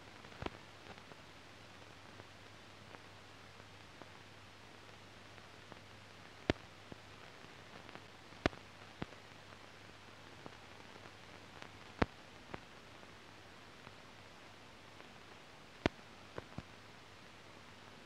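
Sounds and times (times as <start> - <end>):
film soundtrack hiss and hum: 0.0 - 18.0.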